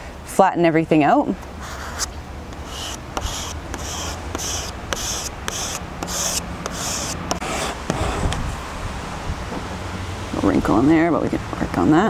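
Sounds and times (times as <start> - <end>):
plastic card scraping: 1.6 - 8.4.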